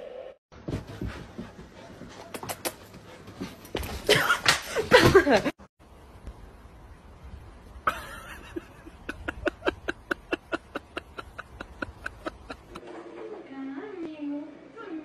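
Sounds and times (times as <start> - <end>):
person laughing: 4.1 - 5.5, 7.8 - 12.8.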